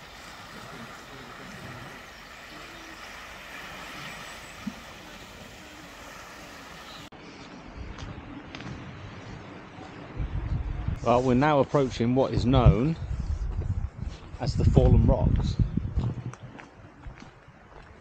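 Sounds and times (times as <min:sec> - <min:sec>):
choppy water: 0:00.0 - 0:07.1
wind: 0:00.0 - 0:18.0.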